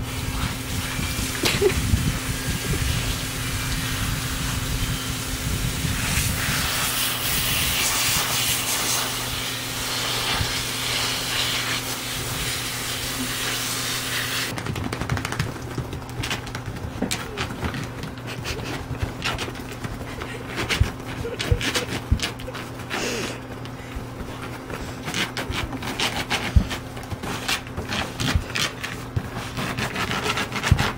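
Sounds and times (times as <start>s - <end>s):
hose nozzle spraying water: 0.0s - 14.6s.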